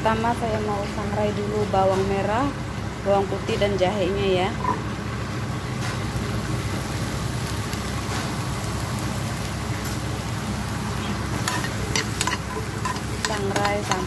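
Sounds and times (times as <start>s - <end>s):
vegetables roasting in pan: 0.0s - 14.0s
spatula clicking against pan: 11.4s - 14.0s.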